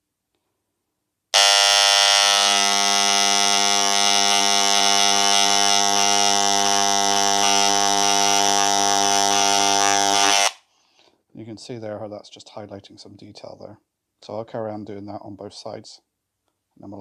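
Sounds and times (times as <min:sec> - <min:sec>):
electric engraving tool buzzing: 0:01.4 - 0:10.6.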